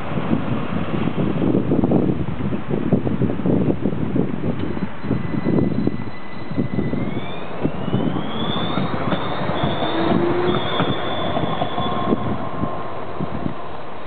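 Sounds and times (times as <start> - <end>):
wheels rumbling on rails: 0.0 - 14.0
tram traction drive whining: 4.6 - 14.0.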